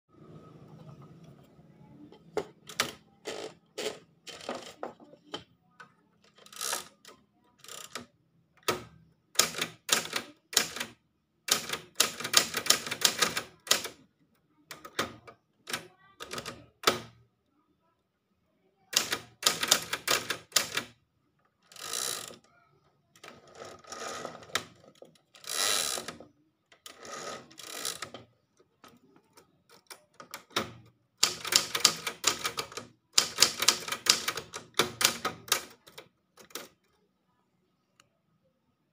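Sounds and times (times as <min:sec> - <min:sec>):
typewriter carriage return: 0:02.5 - 0:04.8, 0:06.4 - 0:14.0, 0:18.9 - 0:20.9, 0:29.8 - 0:36.8
typewriter keys clacking: 0:31.2 - 0:36.7.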